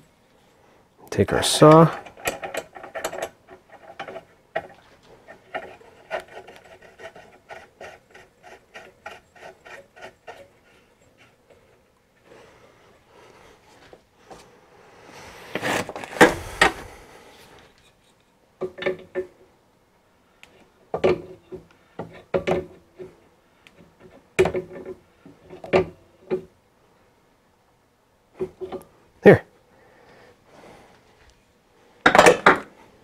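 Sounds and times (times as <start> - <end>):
metal clinks and scrapes: 1.3 - 11.8
rustling scrape with clicks: 15.4 - 18.4.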